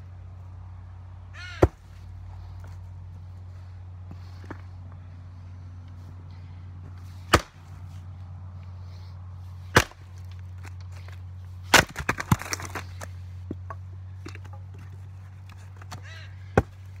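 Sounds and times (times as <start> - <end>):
steady low hum: 0.0 - 17.0
axe chopping wood: 1.5 - 1.9, 7.2 - 7.7, 9.7 - 13.6, 15.8 - 17.0
wood cracking as it splits: 9.8 - 13.1.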